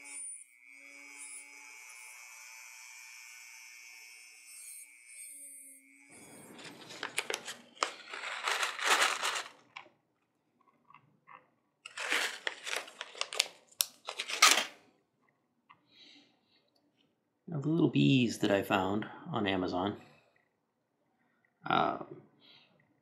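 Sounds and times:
plastic bag crinkling: 0:06.2 - 0:09.9, 0:11.9 - 0:14.8.

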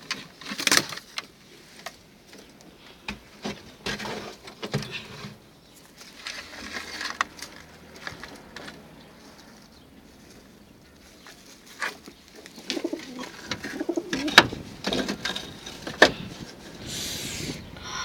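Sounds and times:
straw bedding rustling: 0:05.8 - 0:17.2.

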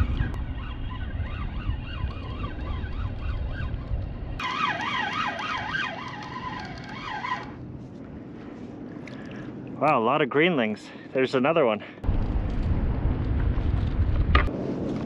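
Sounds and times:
wind rumble on microphone: 0:00.0 - 0:04.4, 0:12.0 - 0:15.0
fishing reel gears whining: 0:04.4 - 0:07.6.

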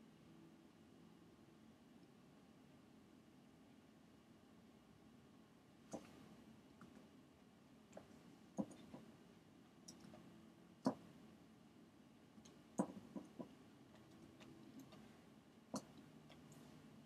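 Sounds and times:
faint room hum: 0:00.0 - 0:17.0
computer mouse clicks: 0:05.9 - 0:06.2, 0:07.9 - 0:09.1, 0:09.8 - 0:10.2, 0:10.8 - 0:11.1, 0:12.4 - 0:15.1, 0:15.7 - 0:16.8.

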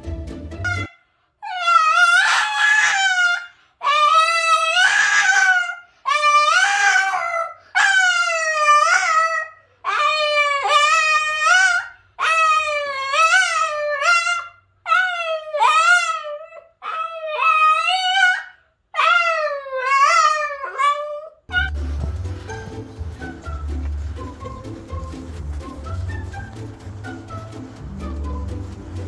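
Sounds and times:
music: 0:00.0 - 0:00.9, 0:21.5 - 0:29.0
dog howling: 0:00.8 - 0:21.7.

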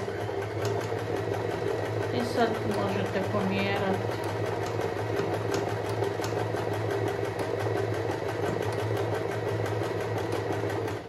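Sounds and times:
sewing machine running: 0:00.0 - 0:11.0.

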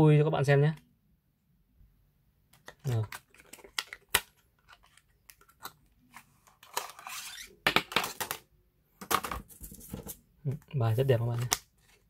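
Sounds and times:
plastic cards clicking and snapping: 0:02.5 - 0:05.8, 0:11.4 - 0:11.7.

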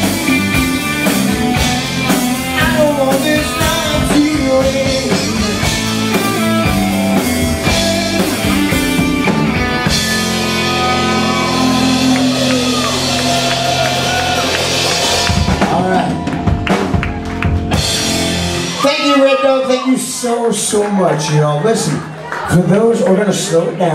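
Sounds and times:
guitar slide: 0:00.0 - 0:15.7
live rock band playing: 0:00.0 - 0:20.8.

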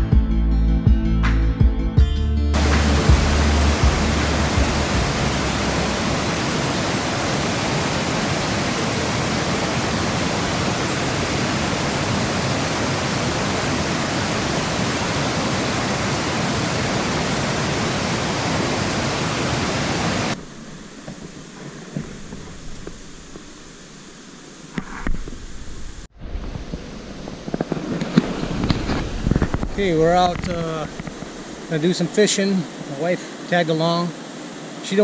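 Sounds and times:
rushing water: 0:02.5 - 0:35.0
quiet outdoor background: 0:20.3 - 0:35.0.

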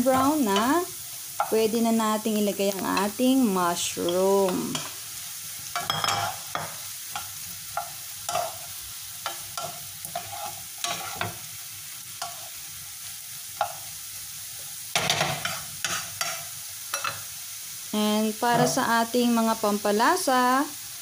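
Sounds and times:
vegetables sizzling in a frying pan: 0:00.0 - 0:21.0
wooden spatula scraping a pan: 0:05.8 - 0:11.5.

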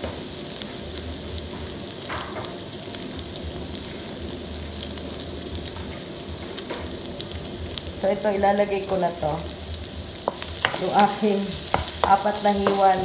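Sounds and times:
food sizzling in oil: 0:00.0 - 0:13.0.

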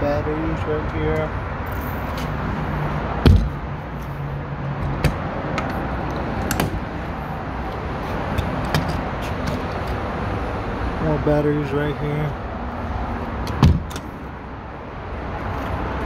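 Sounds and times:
steady background noise: 0:00.0 - 0:16.0
door thump: 0:03.2 - 0:03.6, 0:13.6 - 0:14.0.

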